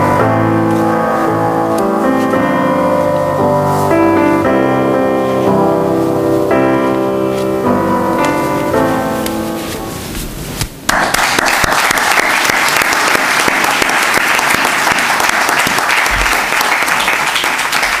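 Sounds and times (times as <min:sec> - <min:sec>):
music: 0:00.0 - 0:10.7
audience applause: 0:10.9 - 0:18.0.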